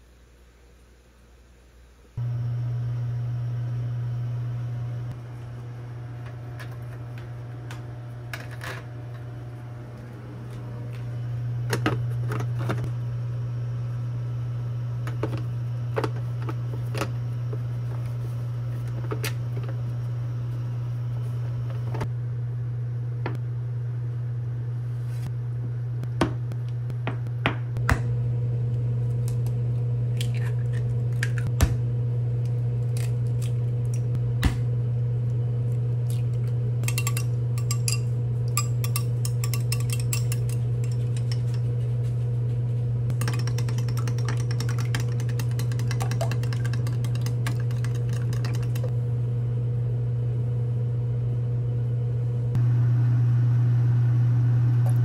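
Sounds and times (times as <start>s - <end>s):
steady low hum: 0.0s - 55.0s
utensils and dishes clinking: 36.8s - 41.8s, 43.1s - 48.9s.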